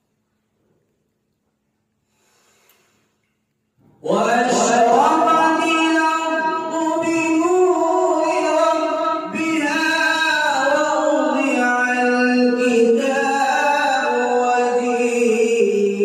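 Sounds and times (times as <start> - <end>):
man reciting in melodic chant: 4.0 - 16.0.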